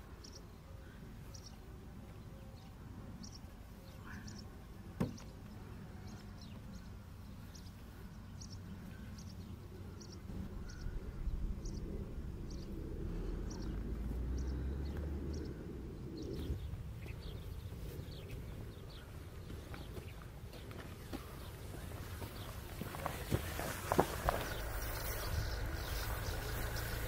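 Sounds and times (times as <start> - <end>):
bird chirping: 0.1 - 1.6, 2.2 - 27.0
low rumble: 9.8 - 17.8, 23.6 - 27.0.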